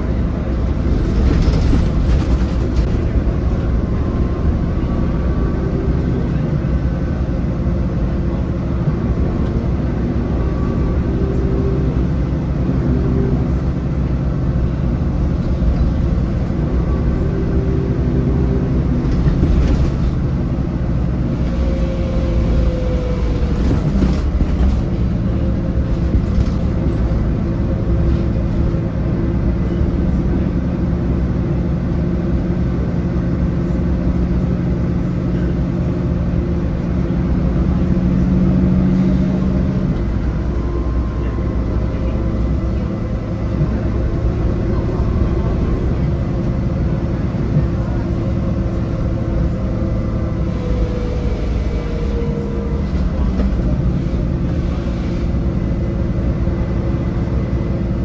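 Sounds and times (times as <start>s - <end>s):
bus engine running: 0.0s - 58.0s
interior rattles: 0.7s - 3.6s.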